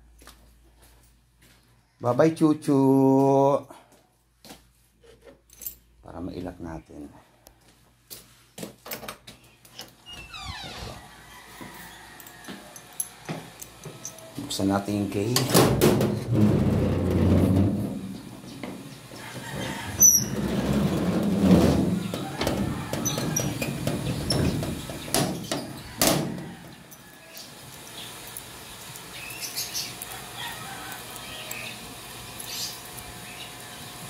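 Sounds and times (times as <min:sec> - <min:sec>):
gate clanking: 0:15.3 - 0:27.0
gate handling rustle: 0:15.3 - 0:27.1
gate hinge squeak: 0:19.4 - 0:21.0, 0:22.0 - 0:26.0.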